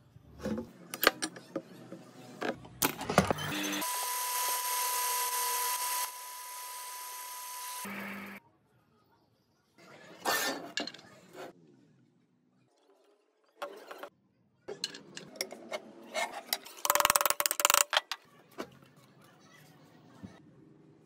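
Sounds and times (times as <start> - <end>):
small power tool whining: 3.4 - 8.4
clatter of parts being handled: 16.5 - 18.2.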